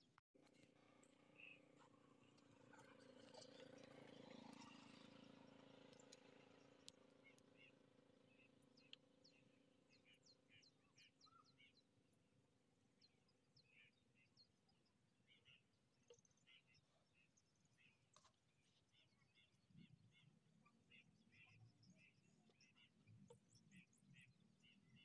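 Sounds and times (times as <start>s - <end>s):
small birds chirping: 0.0s - 12.0s, 12.9s - 25.0s
faint clicks: 5.9s - 7.5s, 8.8s - 9.1s.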